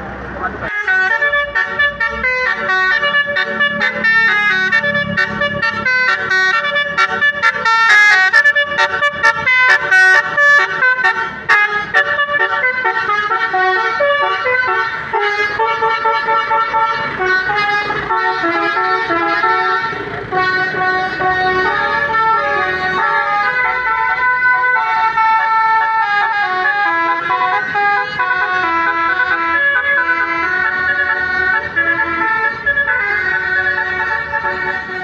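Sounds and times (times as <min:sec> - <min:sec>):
melody horns playing a tune: 0:00.7 - 0:35.0.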